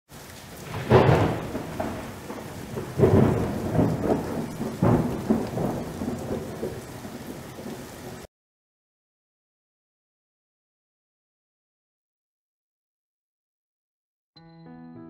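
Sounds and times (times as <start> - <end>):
steady rain: 0.1 - 8.3
rolling thunderclaps: 0.5 - 8.3.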